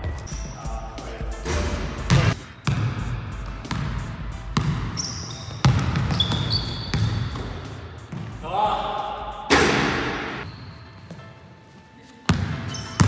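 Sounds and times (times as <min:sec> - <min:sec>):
sneakers squeaking on floor: 0:00.0 - 0:08.8, 0:09.5 - 0:13.0
basketball bouncing on wooden floor: 0:01.5 - 0:08.4.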